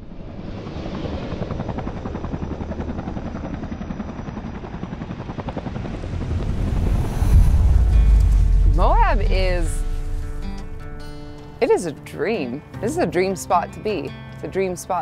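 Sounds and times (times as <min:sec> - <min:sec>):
fluttering mechanical drone: 0:00.0 - 0:11.8.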